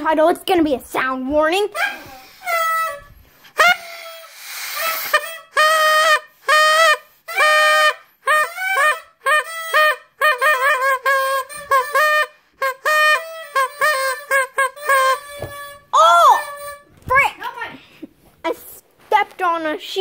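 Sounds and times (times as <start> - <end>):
toy horn honking: 4.8 - 16.9.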